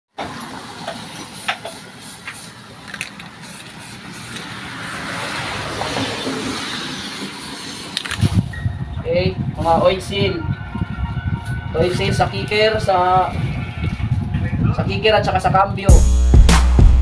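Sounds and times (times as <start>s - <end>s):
vehicle passing: 0.2s - 15.5s.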